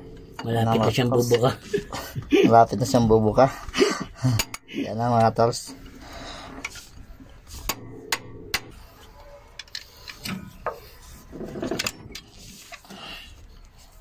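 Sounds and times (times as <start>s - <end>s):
metal scraping: 0.0s - 2.0s
metallic clicks and knocks: 4.4s - 6.0s, 7.6s - 8.8s.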